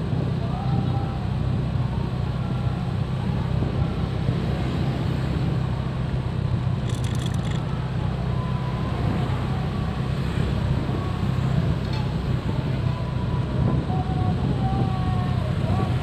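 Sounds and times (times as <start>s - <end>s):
road and wind noise: 0.0s - 16.0s
clatter of clicks: 6.8s - 7.7s.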